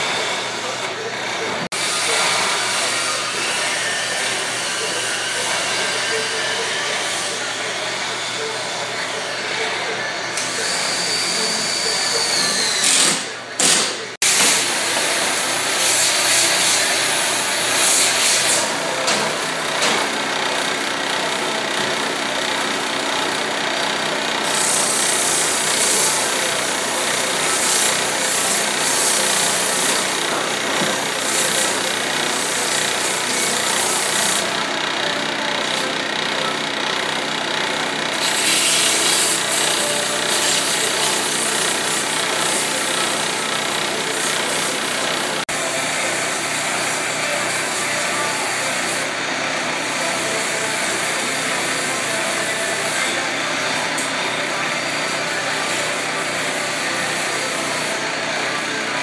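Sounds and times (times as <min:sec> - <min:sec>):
lathe motor hum: 0:14.7 - 0:59.0
sandpaper hissing on wood: 0:17.6 - 0:18.7.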